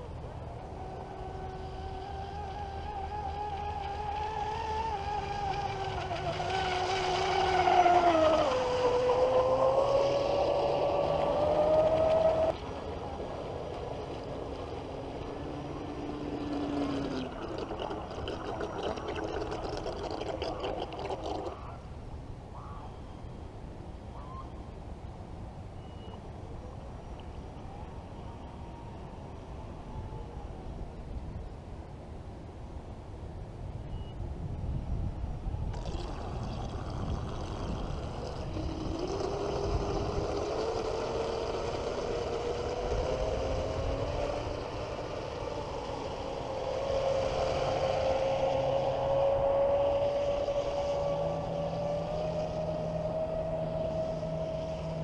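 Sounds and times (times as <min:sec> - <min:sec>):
electric motor whining: 0:35.8 - 0:55.0.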